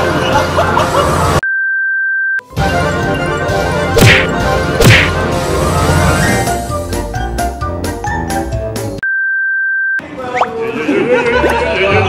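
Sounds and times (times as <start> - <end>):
background music: 0.0 - 1.4, 2.5 - 9.0.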